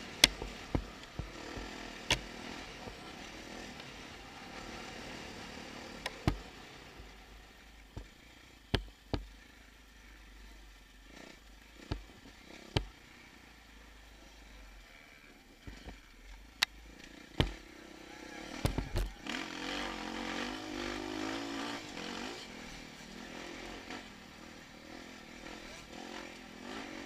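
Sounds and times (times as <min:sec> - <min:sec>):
muffled dirt bike engine: 0:00.0 - 0:27.0
camera knocks from bumps: 0:08.7 - 0:09.2, 0:18.6 - 0:19.1.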